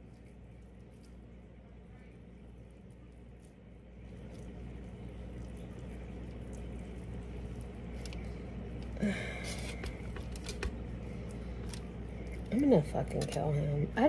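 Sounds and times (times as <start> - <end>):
hands squishing breaded chicken: 0.0 - 13.4
steady low hum: 0.0 - 14.0
foil crinkling and tapping: 9.6 - 11.9.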